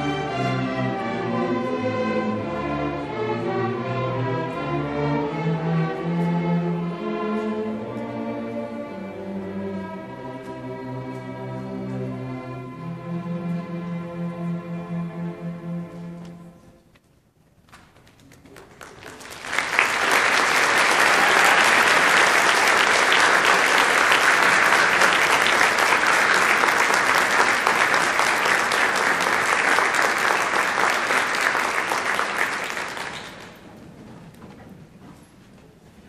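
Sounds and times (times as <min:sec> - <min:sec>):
audience applauding: 0:18.3 - 0:33.7.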